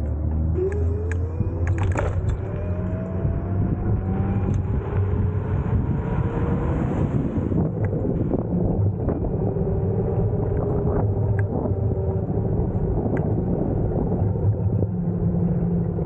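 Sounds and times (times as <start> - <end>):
tyre and wind rumble: 0.0 - 16.0
electric scooter motor whining: 0.4 - 5.9.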